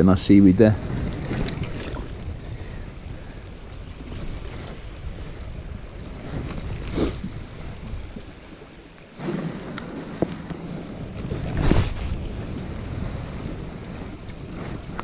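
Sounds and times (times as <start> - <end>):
wind on microphone: 0.0 - 15.0
sea washing around rocks: 0.4 - 15.0.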